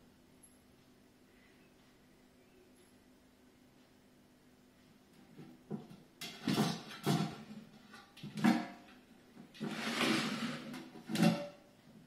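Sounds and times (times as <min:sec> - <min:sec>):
scraping rattle of pot: 0:06.2 - 0:11.6.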